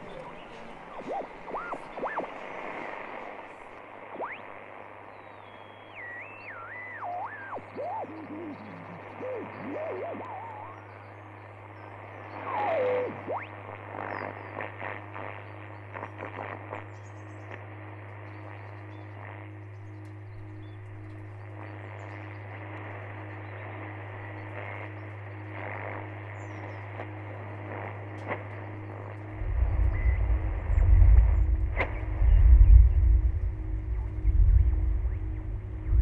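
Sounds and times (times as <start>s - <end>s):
low steady hum: 17.1s - 36.0s
softly pulsing tone: 24.6s - 36.0s.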